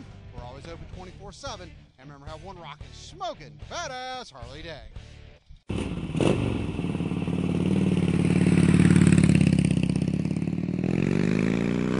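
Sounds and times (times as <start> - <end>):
motorcycle engine pulsing beat: 5.7 - 11.9.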